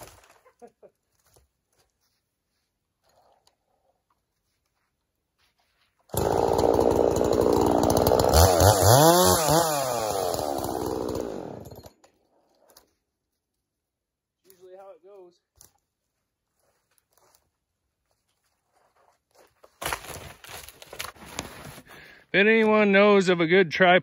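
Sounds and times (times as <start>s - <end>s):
chainsaw cutting log: 6.1s - 12.0s.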